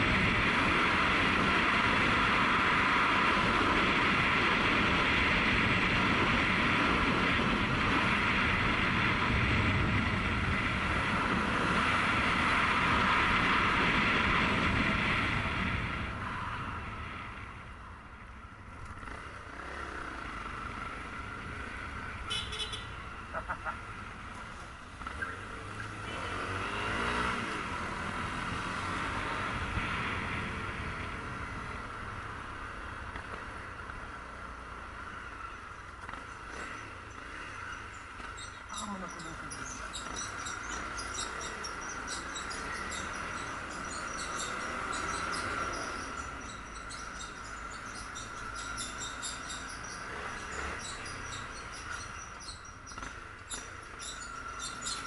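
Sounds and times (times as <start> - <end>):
wind rushing on microphone: 0.0 - 17.9
motorcycle engine running: 27.6 - 55.0.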